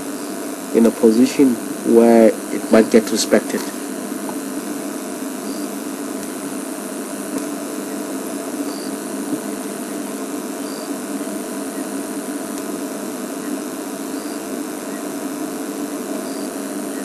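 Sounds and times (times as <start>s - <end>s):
faint high-pitched peeps: 0.0s - 1.1s, 5.4s - 5.8s, 7.6s - 17.0s.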